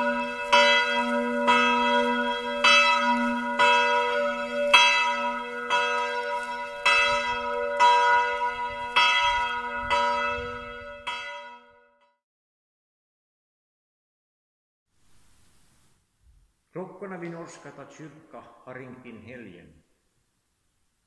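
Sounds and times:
church bells ringing: 0:00.0 - 0:12.1.

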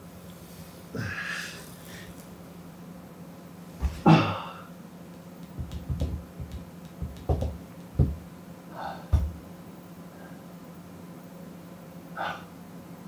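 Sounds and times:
thuds and knocks on floor: 0:03.8 - 0:04.0, 0:05.4 - 0:08.3, 0:09.1 - 0:09.4.

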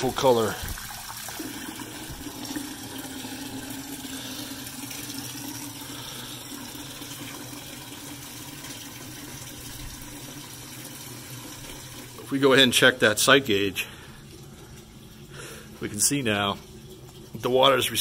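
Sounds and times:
water pouring into plastic bucket: 0:00.0 - 0:18.0.

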